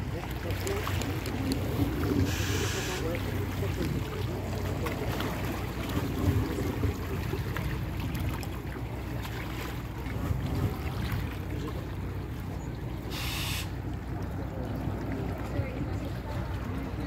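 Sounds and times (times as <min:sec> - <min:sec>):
sea water rumble: 0:00.0 - 0:17.0
wind buffeting microphone: 0:09.9 - 0:11.7.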